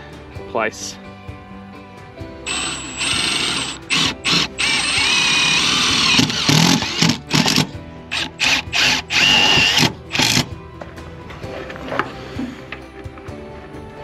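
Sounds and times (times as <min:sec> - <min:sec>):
cordless drill driving screws: 0:02.5 - 0:10.5.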